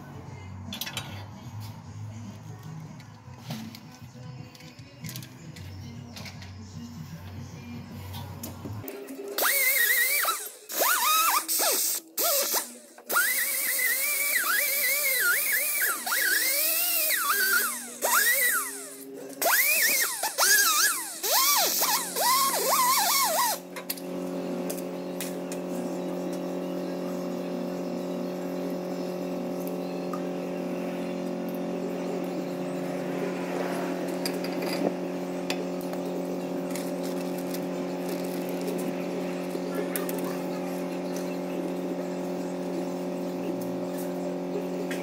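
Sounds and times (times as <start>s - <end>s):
pneumatic die grinder revving: 9.4s - 26.6s.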